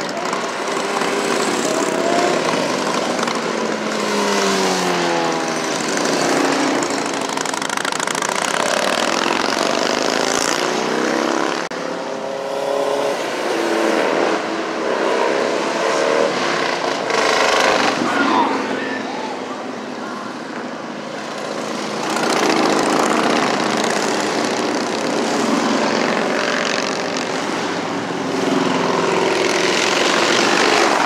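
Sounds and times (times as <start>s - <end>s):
cars and motorcycles passing: 0.0s - 31.0s
motorcycle passing close: 0.0s - 31.0s.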